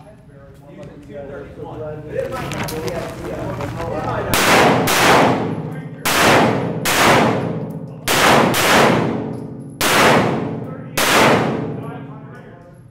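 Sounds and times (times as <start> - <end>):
pistol shots echoing: 4.3 - 12.2.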